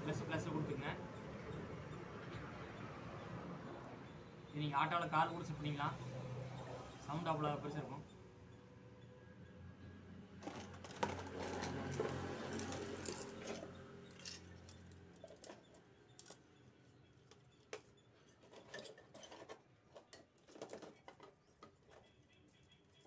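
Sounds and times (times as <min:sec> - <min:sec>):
plastic parts clicking and rustling: 0:10.4 - 0:16.5, 0:17.2 - 0:22.3.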